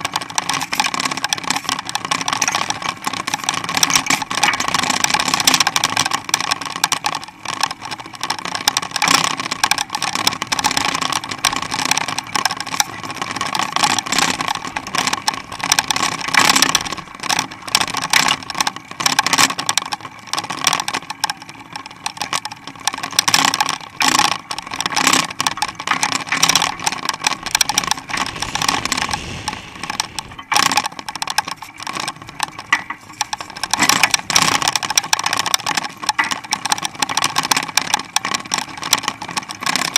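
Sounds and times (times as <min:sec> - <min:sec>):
bike rattling and clattering: 0:00.0 - 0:39.9
road noise: 0:27.3 - 0:30.6.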